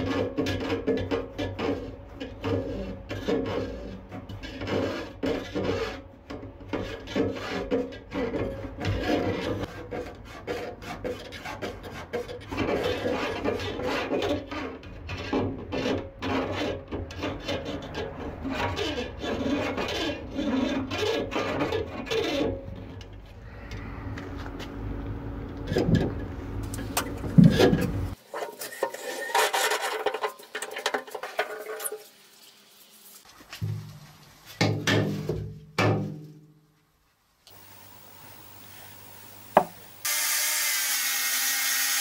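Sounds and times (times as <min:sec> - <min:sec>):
rasping and rubbing strokes: 0:00.0 - 0:23.1.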